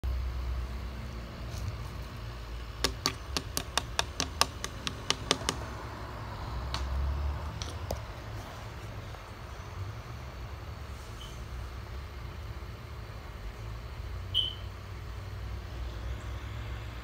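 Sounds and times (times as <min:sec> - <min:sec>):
rapid light tapping: 0:02.8 - 0:05.8.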